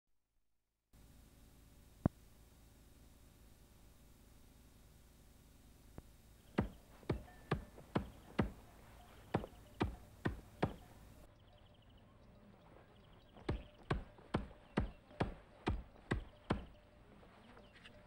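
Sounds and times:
blade chopping into wood: 0:06.6 - 0:08.6.

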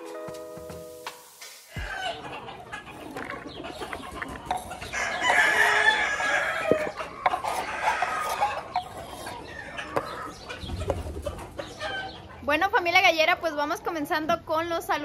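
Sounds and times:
roosters crowing and clucking: 0:00.0 - 0:12.6
knife scraping cutting board: 0:02.8 - 0:10.2.

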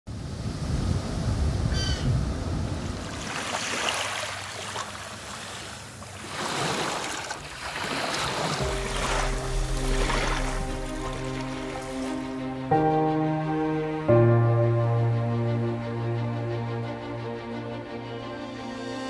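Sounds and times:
low wind rumble: 0:00.1 - 0:03.4, 0:08.3 - 0:18.6
small waves washing on sand: 0:00.1 - 0:12.2.

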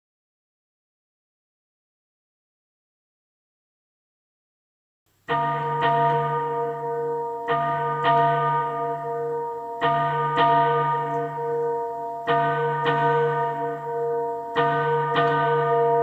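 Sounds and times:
bells ringing: 0:05.3 - 0:16.0.

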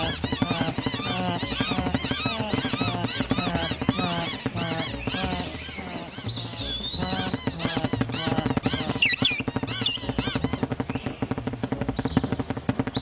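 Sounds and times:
cartoon birds chirping: 0:00.0 - 0:11.2
bouncy music score: 0:00.0 - 0:13.0.

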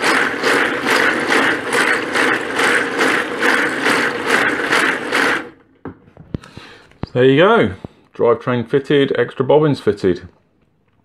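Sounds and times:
braiding machine clattering: 0:00.0 - 0:05.6.

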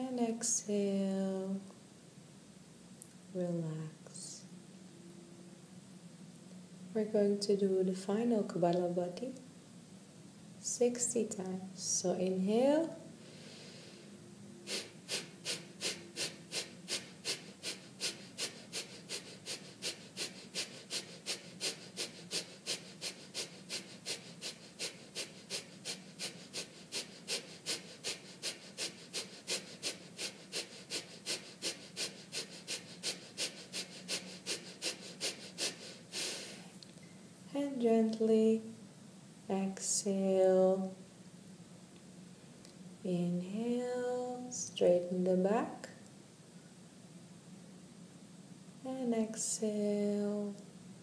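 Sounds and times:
quiet inhale: 0:13.2 - 0:37.3
forceful nasal exhalations: 0:14.7 - 0:36.8.

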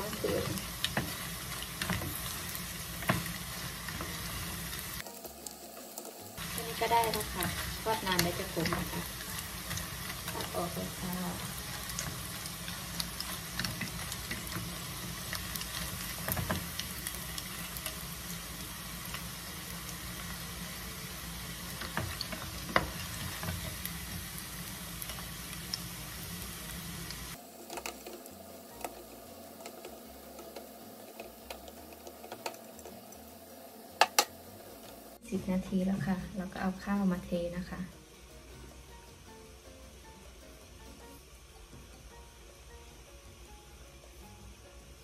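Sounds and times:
fish sizzling in hot oil: 0:00.0 - 0:45.0
spatula stirring in pot: 0:27.6 - 0:34.2.

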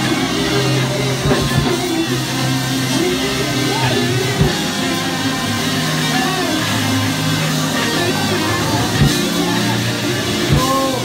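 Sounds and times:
guitar long held low notes: 0:00.0 - 0:11.0
drum hits: 0:01.2 - 0:02.0, 0:04.4 - 0:04.9, 0:09.0 - 0:09.4, 0:10.5 - 0:11.0.

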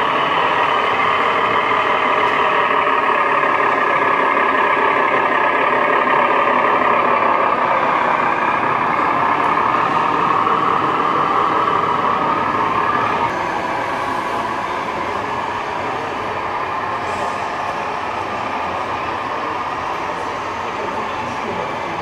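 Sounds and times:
toy truck diesel engine sound: 0:00.0 - 0:22.0.

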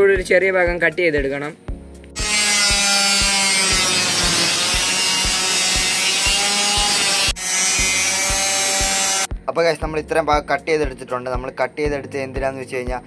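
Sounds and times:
angle grinder cutting metal: 0:02.2 - 0:09.3.

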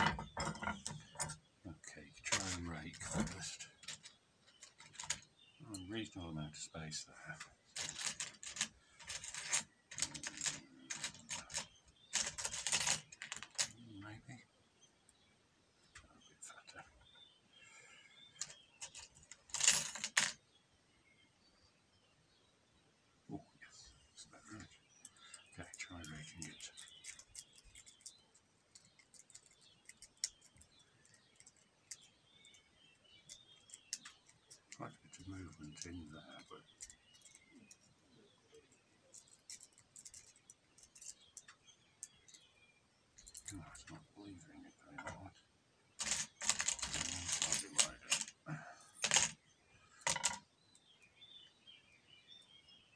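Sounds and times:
lock pick scraping in padlock: 0:02.3 - 0:05.3, 0:26.0 - 0:32.6, 0:33.2 - 0:34.8, 0:35.8 - 0:38.0.

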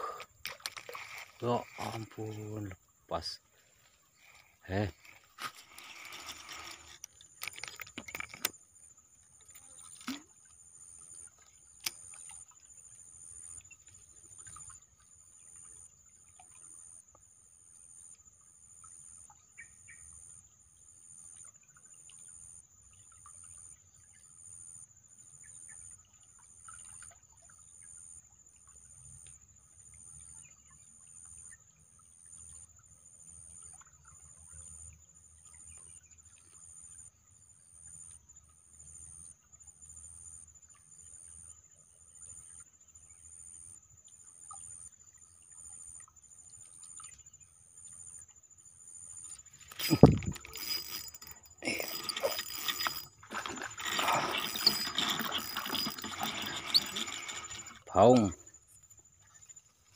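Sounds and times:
insect high chirp: 0:00.0 - 0:59.9
clicks and rustles: 0:00.4 - 0:02.2, 0:04.2 - 0:08.6, 0:49.6 - 0:57.9
high-pitched insect drone: 0:49.2 - 0:59.0.

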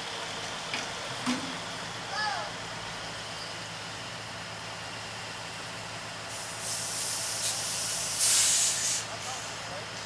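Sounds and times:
diesel truck engines idling: 0:00.0 - 0:10.0
air brake hiss: 0:06.3 - 0:09.6.

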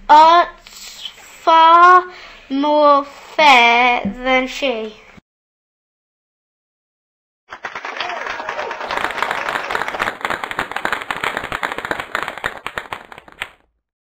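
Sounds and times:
audience clapping: 0:07.5 - 0:13.6.

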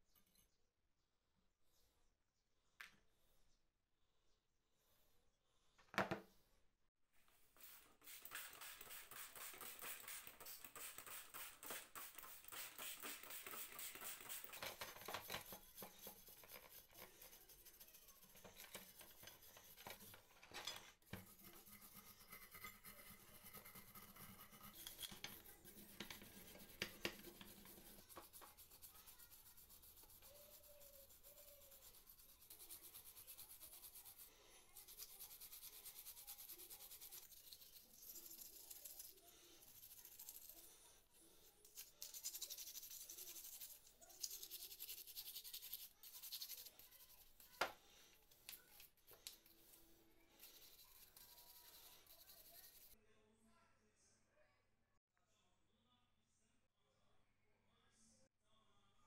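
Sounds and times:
wire brush scrubbing metal: 0:07.6 - 0:40.6.

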